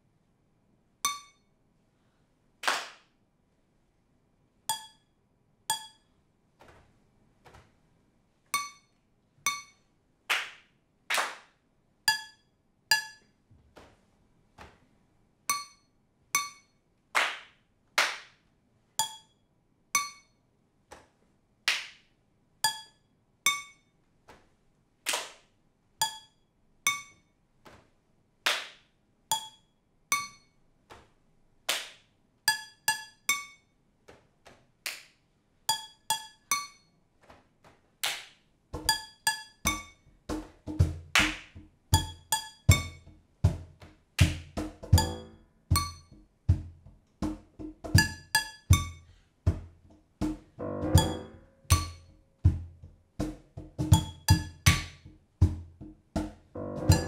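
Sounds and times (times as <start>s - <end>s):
stick tapping kitchen utensils: 1.1s - 1.4s, 4.7s - 5.0s, 5.7s - 6.1s, 8.5s - 9.8s, 12.1s - 13.4s, 15.5s - 15.8s, 16.4s - 16.7s, 19.0s - 19.3s, 20.0s - 20.3s, 22.6s - 23.8s, 26.0s - 27.2s, 29.3s - 30.4s, 32.5s - 33.6s, 35.7s - 36.8s, 38.8s - 57.0s
hand claps: 2.6s - 3.2s, 10.3s - 11.6s, 17.2s - 18.4s, 21.7s - 22.1s, 25.1s - 25.5s, 28.4s - 28.9s, 31.7s - 32.1s, 34.8s - 35.2s, 38.0s - 38.4s, 40.4s - 41.7s, 43.8s - 44.8s.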